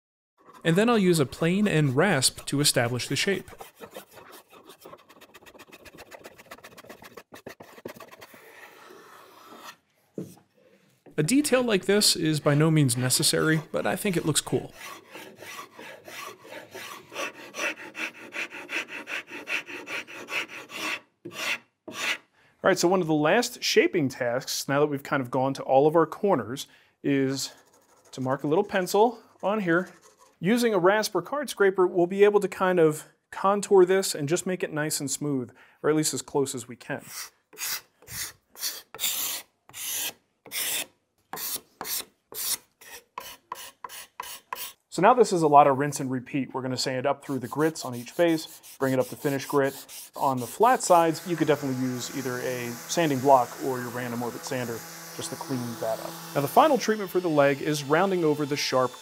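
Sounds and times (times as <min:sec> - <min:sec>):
hand rasp filing wood: 0:00.4 - 0:09.8, 0:13.2 - 0:22.2, 0:37.1 - 0:44.8, 0:47.2 - 0:59.0
card scraper scraping wood: 0:01.4 - 0:09.8, 0:13.4 - 0:22.2, 0:37.1 - 0:44.8.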